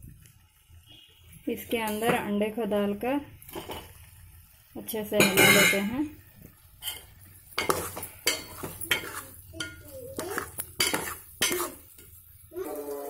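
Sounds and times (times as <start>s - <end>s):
metal spoon scraping a metal pot: 6.8s - 12.0s.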